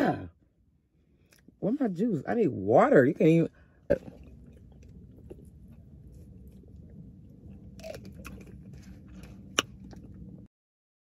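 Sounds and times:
low car cabin hum: 0.0 - 10.5
mouth drinking and chewing: 3.8 - 10.5.

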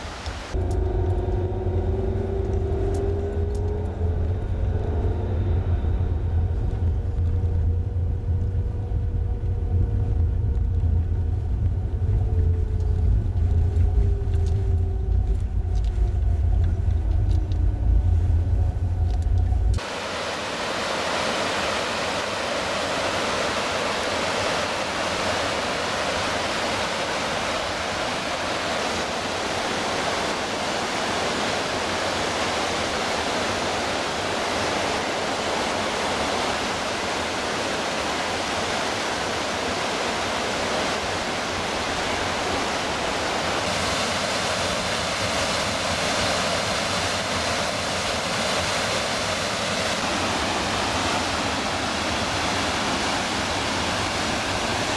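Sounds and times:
river rushing over rapids: 19.8 - 54.9.

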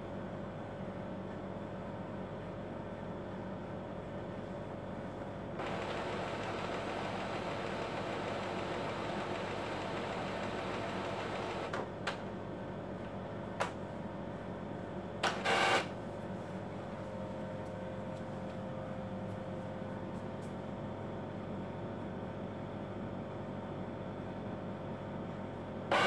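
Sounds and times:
printer mechanical whir: 5.6 - 12.3, 15.2 - 16.0.

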